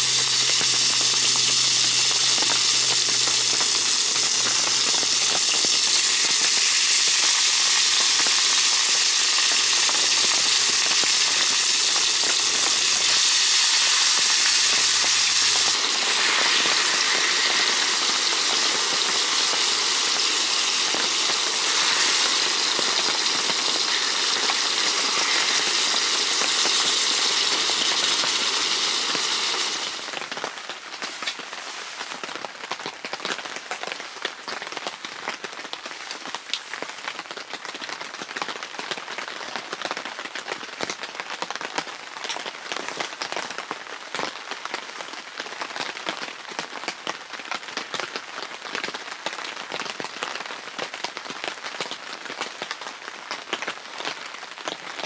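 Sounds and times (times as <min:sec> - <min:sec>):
meat sizzling on a griddle: 0:00.0 - 0:32.5.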